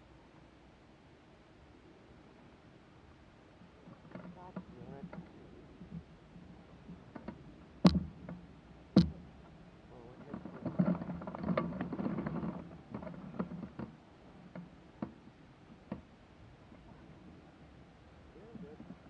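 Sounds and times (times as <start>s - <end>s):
sharp knocks: 7.8s - 8.4s, 9.0s - 9.3s
gear rustling and clattering: 10.1s - 14.7s.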